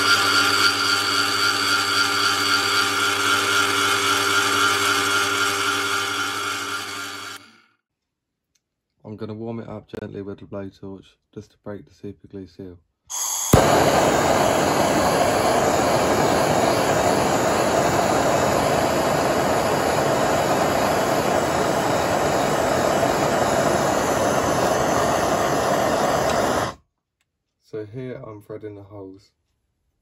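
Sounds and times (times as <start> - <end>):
blowtorch flame rushing: 13.1 - 26.8
blowtorch ignition pop: 13.1 - 26.8
gas hiss: 13.1 - 26.8.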